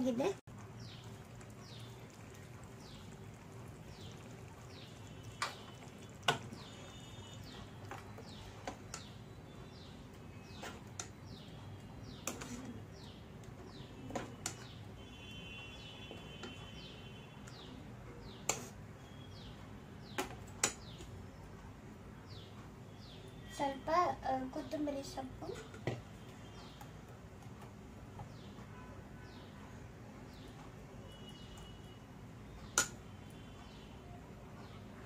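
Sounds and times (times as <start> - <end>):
bird chirping: 6.5 - 20.2.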